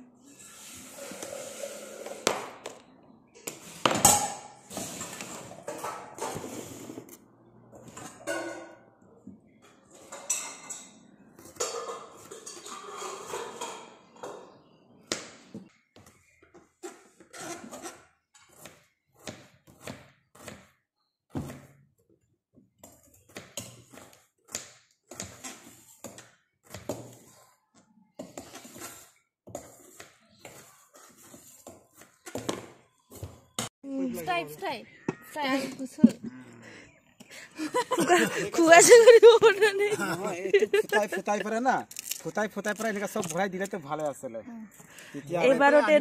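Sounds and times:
metallic clatter of steel bowl: 11.6 - 14.0
knife slicing onion on cutting board: 17.5 - 20.8.

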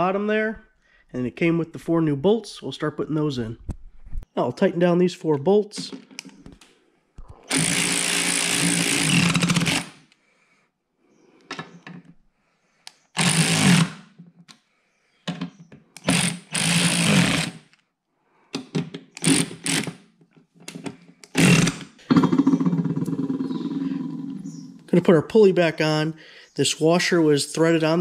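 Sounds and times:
electric ratchet running: 7.5 - 10.0, 13.2 - 13.9, 16.0 - 17.5, 19.2 - 20.0, 21.3 - 21.8.

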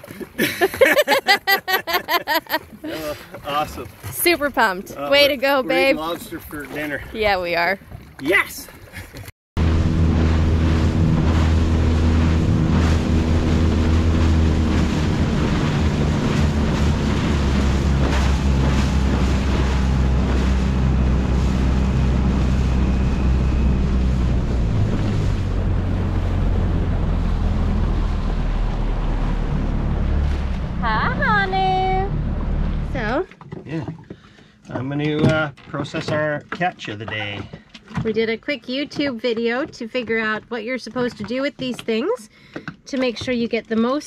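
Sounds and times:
water rushing past hull: 0.0 - 33.4
outboard motor running: 1.0 - 34.8
wind buffeting microphone: 9.6 - 33.2.

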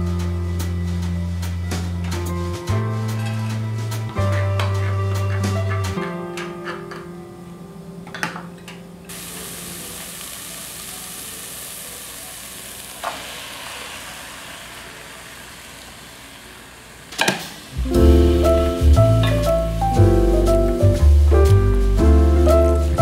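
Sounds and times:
food sizzling in a pot: 9.1 - 23.0.

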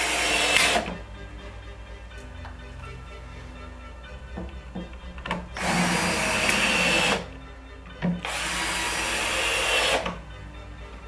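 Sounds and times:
cordless drill whining: 0.0 - 1.0, 5.6 - 7.3, 8.2 - 10.2.

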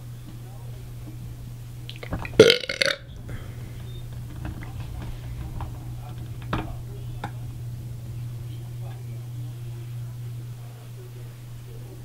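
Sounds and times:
steady low hum: 0.0 - 12.0
faint clicks and taps: 3.1 - 9.1.

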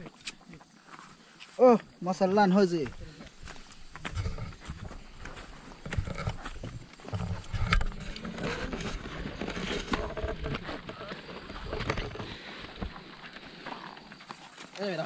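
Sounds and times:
footsteps on a dirt path: 0.0 - 15.0
voices talking: 1.5 - 4.8, 14.6 - 15.0.

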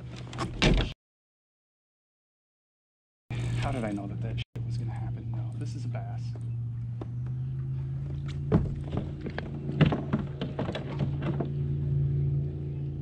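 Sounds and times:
knocks and thunks of gear: 0.0 - 1.0, 8.0 - 11.7
steady low hum: 3.3 - 13.0.

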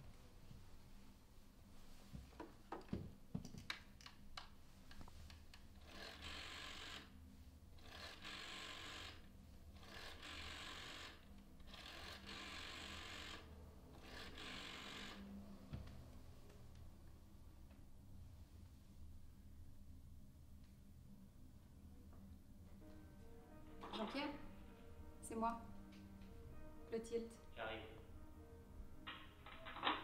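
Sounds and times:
rotary dial whirring: 5.8 - 7.1, 7.8 - 15.3.

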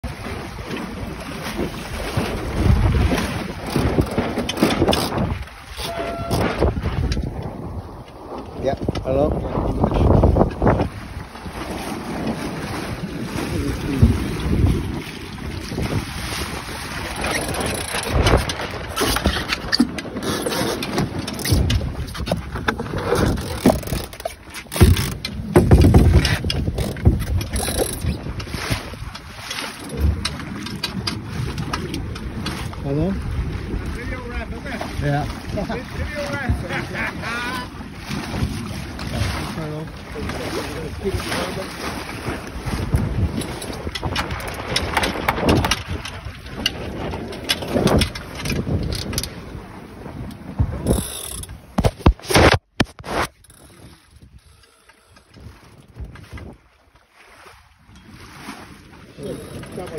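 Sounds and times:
wind buffeting microphone: 0.0 - 54.6, 55.2 - 56.8
water splashing along hull: 0.0 - 59.9
knocks and clicks: 3.6 - 7.5, 17.2 - 32.6, 43.4 - 49.4, 50.8 - 53.3.

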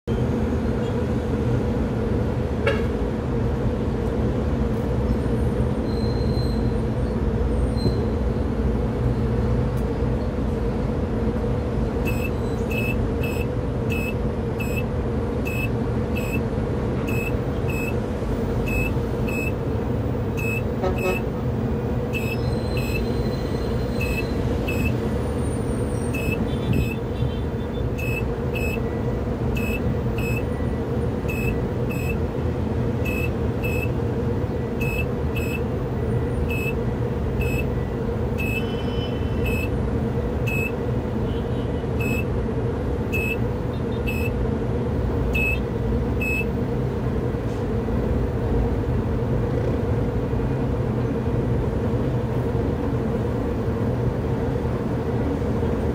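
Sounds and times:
crane drive humming: 10.6 - 41.2
short high warning beep: 12.1 - 14.8, 15.5 - 16.4, 17.1 - 18.0, 18.7 - 19.6, 20.4 - 21.2, 22.2 - 23.2, 24.0 - 24.9, 28.0 - 28.8, 29.6 - 30.5, 31.3 - 32.2, 33.1 - 33.9, 34.8 - 35.6, 36.5 - 36.8, 37.4 - 37.7, 38.4 - 38.8, 42.0 - 42.3, 43.2 - 43.4, 44.1 - 44.3.

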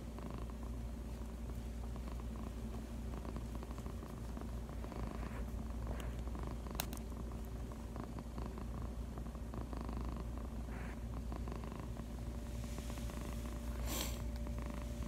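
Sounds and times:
cat purring: 0.0 - 15.0.

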